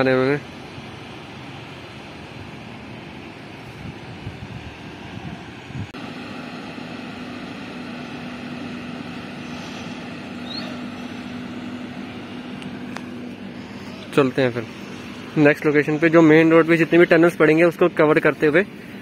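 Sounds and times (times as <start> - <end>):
motor hum: 0.0 - 19.0
short high chirp: 9.5 - 11.0.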